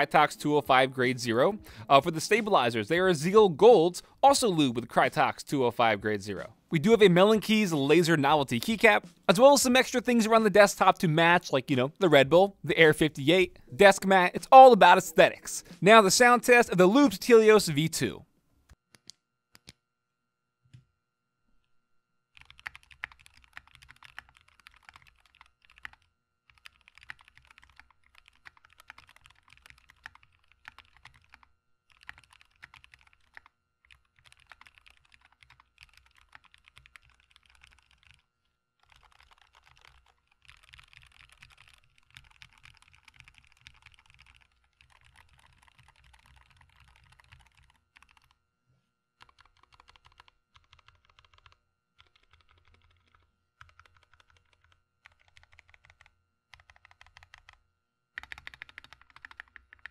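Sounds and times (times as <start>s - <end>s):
mechanical keyboard typing: 22.4s - 38.2s, 38.8s - 48.4s, 49.2s - 57.6s, 58.2s - 59.9s.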